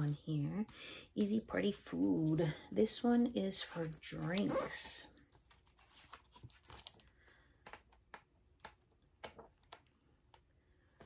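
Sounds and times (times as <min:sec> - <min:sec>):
book pages flipping: 0:03.6 - 0:10.5.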